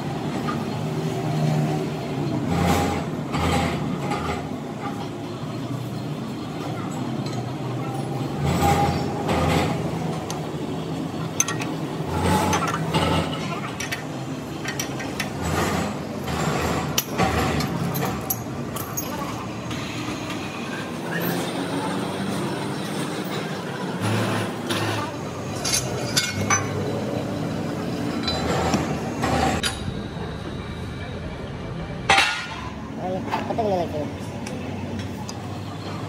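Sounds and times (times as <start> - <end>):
workshop background noise: 0.0 - 36.0
metal clinks of wrench and clamps: 11.3 - 11.7, 12.5 - 15.5, 16.8 - 19.4, 25.5 - 26.9, 28.2 - 28.6.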